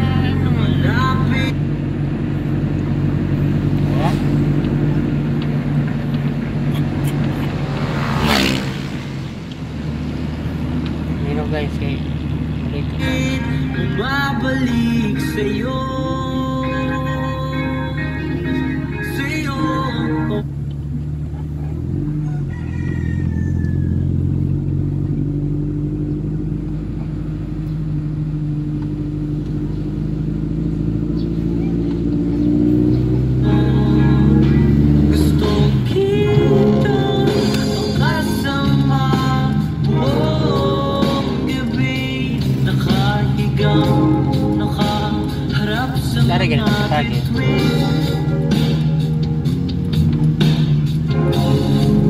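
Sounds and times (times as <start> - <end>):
car engine hum inside cabin: 0.0 - 52.0
rooster crowing: 22.0 - 24.3.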